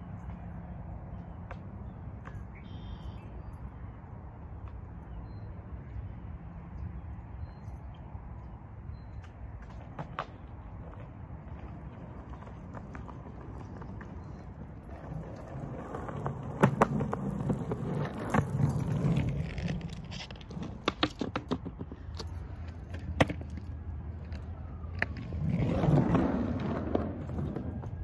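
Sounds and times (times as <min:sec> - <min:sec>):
skateboard wheels rolling on concrete: 0:00.0 - 0:28.0
skateboard clacks: 0:09.6 - 0:28.0.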